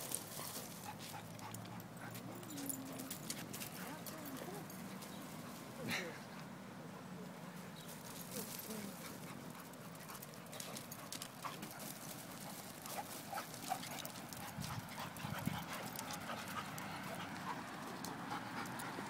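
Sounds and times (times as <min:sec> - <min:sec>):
high dog sounds: 0:09.0 - 0:19.0.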